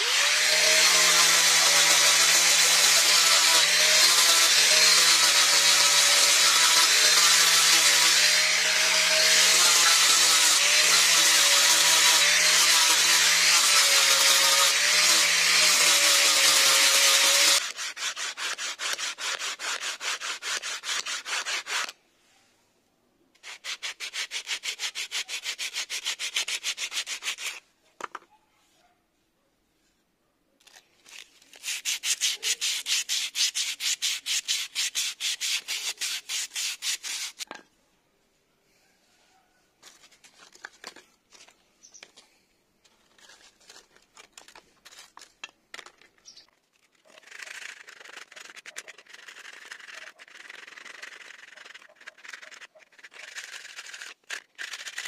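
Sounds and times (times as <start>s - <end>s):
angle grinder sanding wood: 0.0s - 21.9s, 23.4s - 27.6s, 31.1s - 37.5s, 47.2s - 55.0s
sandpaper rubbing on wood: 0.6s - 22.0s, 23.4s - 27.6s, 31.1s - 37.5s, 47.2s - 55.0s.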